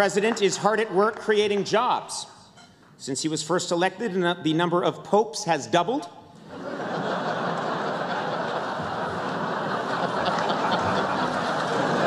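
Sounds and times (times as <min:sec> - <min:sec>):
large audience laughing: 0:06.4 - 0:12.0.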